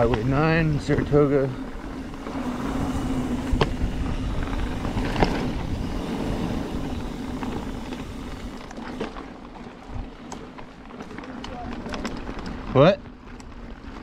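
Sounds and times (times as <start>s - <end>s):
wind on microphone: 0.0s - 8.7s
bike knocking over bumps: 0.0s - 14.0s
bike tyres rumbling on dirt trail: 0.0s - 14.0s.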